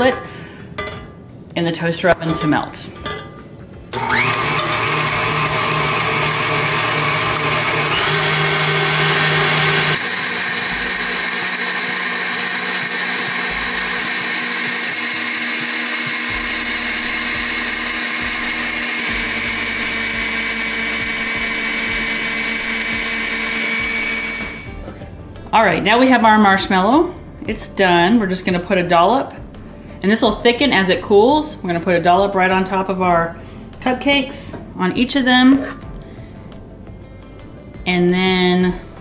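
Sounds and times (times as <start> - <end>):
stand mixer whisking: 4.0 - 24.7.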